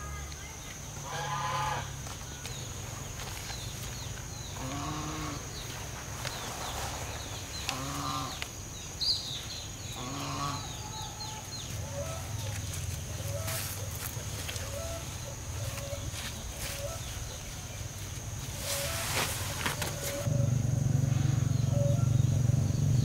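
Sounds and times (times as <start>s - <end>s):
farm animal calling: 1.0s - 2.0s, 4.5s - 5.6s, 7.6s - 8.5s, 9.8s - 17.6s.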